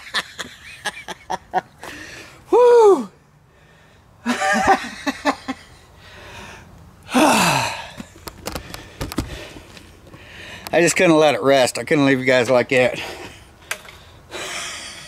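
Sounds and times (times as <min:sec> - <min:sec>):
man sighing: 0:07.1 - 0:08.0
man's breathy utterance: 0:07.1 - 0:08.0.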